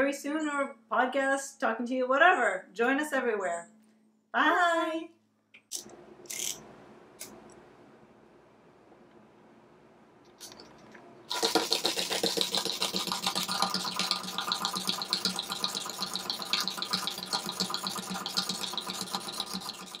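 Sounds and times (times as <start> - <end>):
clockwork toy whirring and clicking: 11.6 - 20.0.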